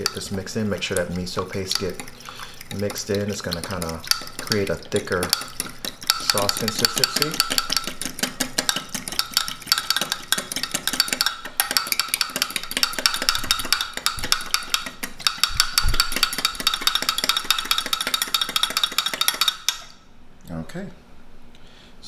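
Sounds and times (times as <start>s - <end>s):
fork clinking against glass: 5.3s - 8.0s.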